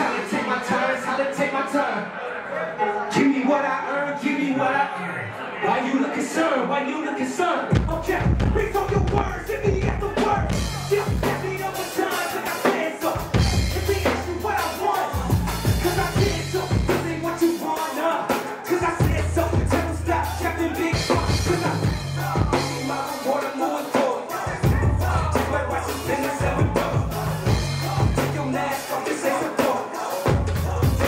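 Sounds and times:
rapping over a beat: 0.0 - 2.1, 5.7 - 31.0
deep bass notes: 7.7 - 11.9, 13.2 - 17.5, 18.8 - 23.0, 24.5 - 28.8, 30.3 - 31.0.

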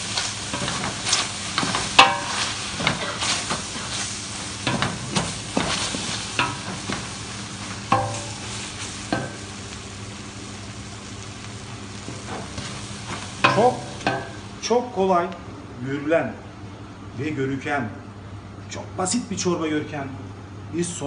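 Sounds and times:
onions sizzling: 0.0 - 15.0
metal pot ringing: 7.9 - 8.4.

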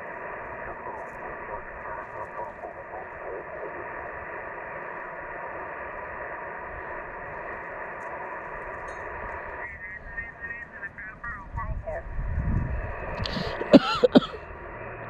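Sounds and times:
garbled radio voice: 0.0 - 5.0, 9.4 - 14.4
faint garbled radio signals: 0.0 - 15.0
radio static hiss: 0.0 - 15.0.

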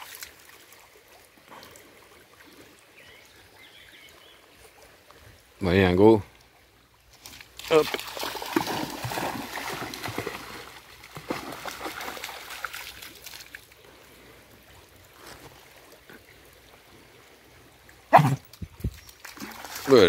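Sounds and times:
trickle of flowing water: 0.0 - 20.0
dog splashing through stream: 7.1 - 16.1, 18.0 - 20.0.

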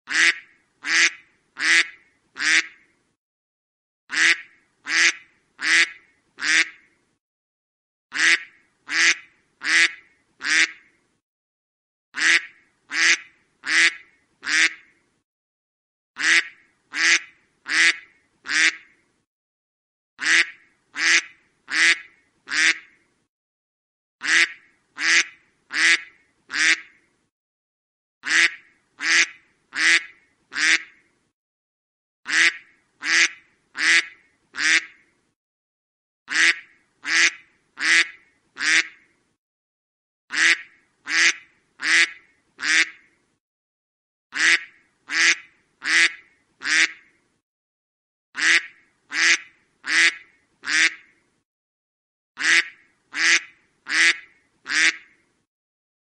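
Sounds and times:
duck quacking: 0.1 - 2.8, 4.1 - 6.9, 8.1 - 10.9, 12.2 - 14.9, 16.2 - 18.9, 20.2 - 23.0, 24.2 - 27.0, 28.2 - 31.0, 32.3 - 35.0, 36.3 - 39.0, 40.3 - 43.1, 44.4 - 47.1, 48.4 - 51.1, 52.4 - 55.2.

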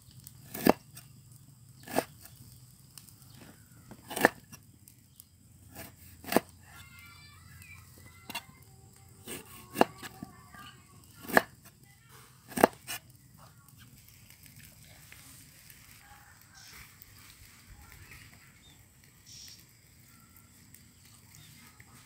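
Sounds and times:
knife cutting on wooden board: 0.5 - 0.8, 1.8 - 2.1, 4.1 - 4.5, 5.8 - 6.5, 9.3 - 10.2, 11.2 - 11.5, 12.5 - 13.0.

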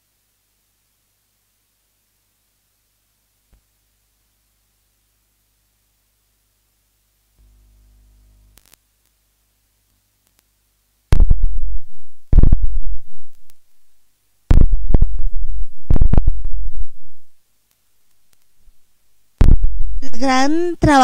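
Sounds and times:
bass-heavy electronic hits: 11.1 - 13.2, 14.5 - 16.8, 19.4 - 20.0.

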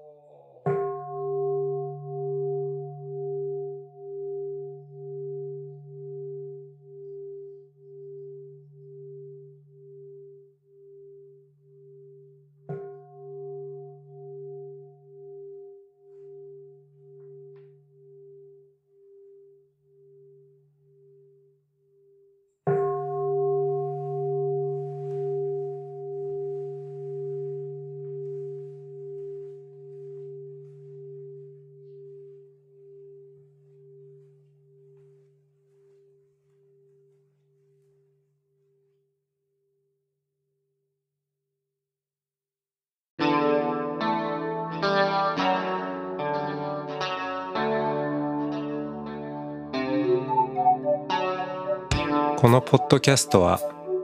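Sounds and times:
bowl bell ringing: 0.6 - 38.0.

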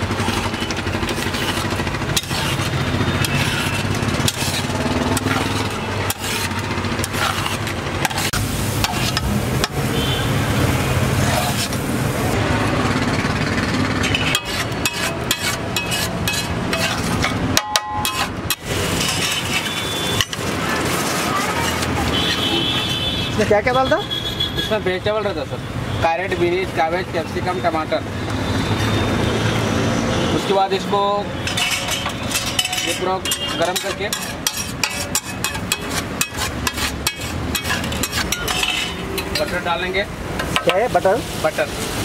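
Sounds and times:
spatula scraping metal griddle: 0.0 - 9.9, 11.1 - 11.9, 14.0 - 23.0, 30.6 - 41.8
street traffic hum: 0.0 - 42.0.

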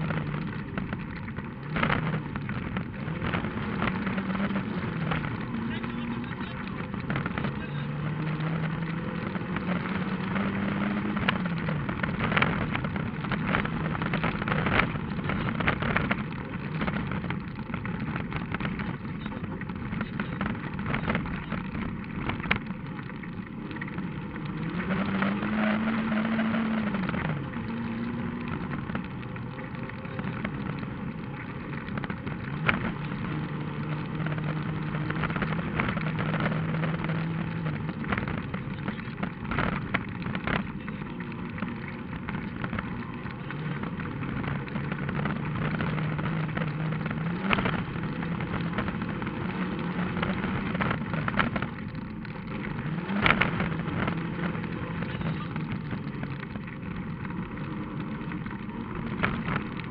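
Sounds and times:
rally car engine running hard: 0.0 - 59.9.

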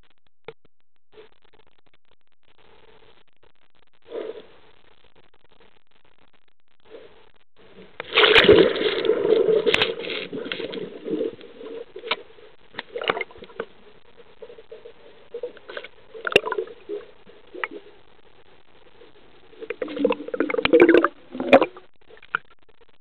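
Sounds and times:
water sloshing underwater: 6.9 - 18.1, 18.8 - 22.6.

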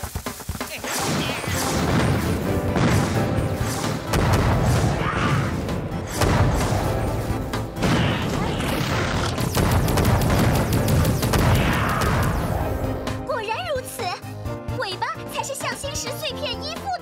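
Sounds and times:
action background music: 0.0 - 17.0
sharp hits: 0.9 - 13.2
explosion booms: 1.0 - 3.5, 4.1 - 7.2, 7.8 - 12.8.

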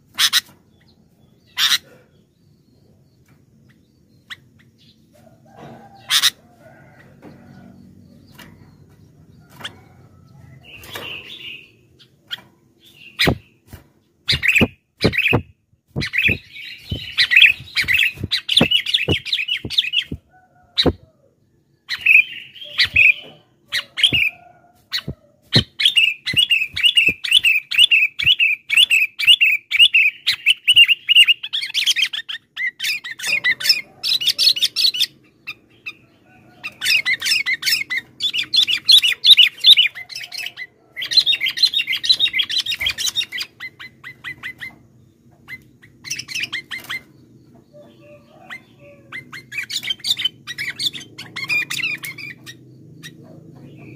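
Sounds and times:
bird chattering calls: 0.1 - 0.6, 1.5 - 2.1, 12.9 - 13.6, 14.3 - 20.2, 47.7 - 53.9.

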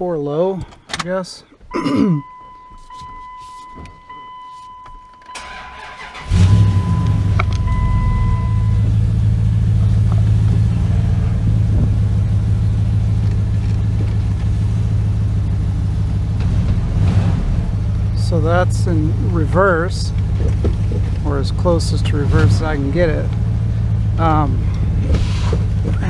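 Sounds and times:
electronic warning tone: 2.2 - 9.0
truck engine starting and idling: 5.2 - 26.0.

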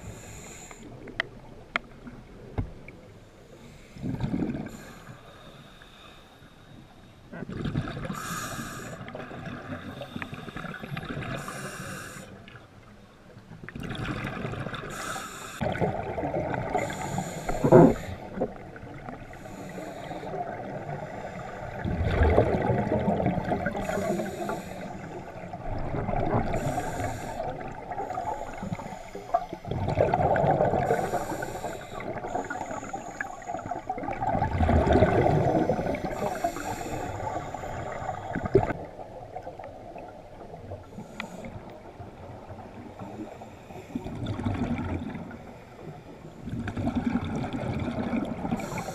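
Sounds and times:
diver breathing through regulator: 8.0 - 9.2, 9.8 - 12.4, 14.8 - 15.7, 16.7 - 18.5, 19.3 - 22.0, 23.5 - 25.5, 26.4 - 34.0, 35.0 - 38.8, 48.4 - 48.9.

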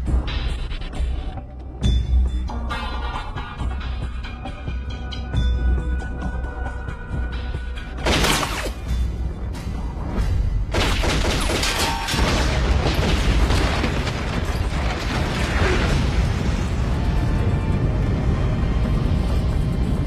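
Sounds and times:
dramatic score music: 0.0 - 20.0
dense loud rumble: 12.7 - 20.0.

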